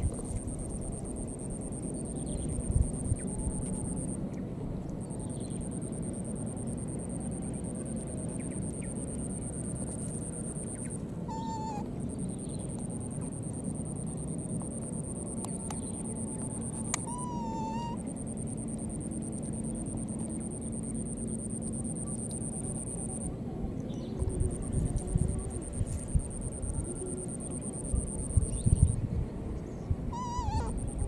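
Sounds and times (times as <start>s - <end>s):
outdoor background noise: 0.0s - 31.0s
baby monkey cooing: 11.3s - 11.9s, 16.5s - 18.1s, 30.1s - 31.0s.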